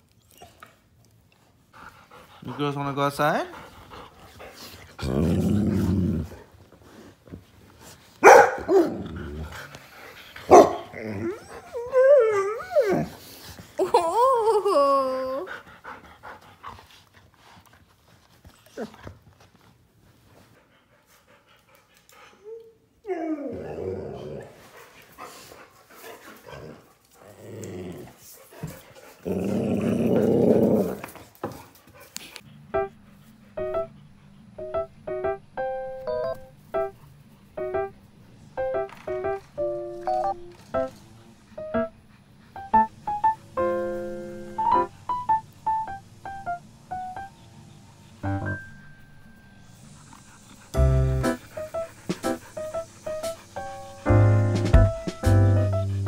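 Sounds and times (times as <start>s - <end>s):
dog growly grumbles: 5.0s - 6.5s, 8.9s - 9.8s, 23.4s - 24.6s, 26.6s - 28.2s, 29.2s - 31.0s
dog grumbling: 5.0s - 6.5s, 29.2s - 31.0s
dog barking: 8.2s - 8.9s, 10.5s - 10.9s
dog whining howl: 10.8s - 13.2s, 22.4s - 24.5s.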